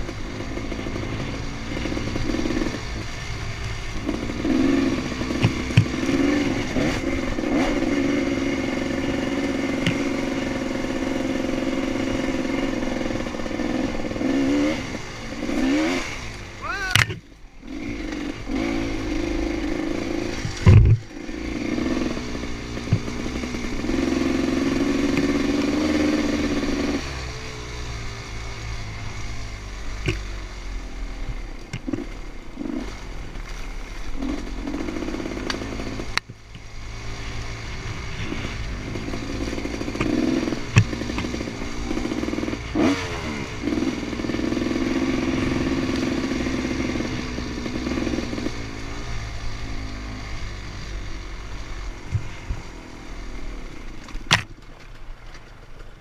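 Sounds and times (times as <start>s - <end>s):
dirt bike engine revving: 0.0s - 54.5s
loud thump: 20.6s - 21.0s.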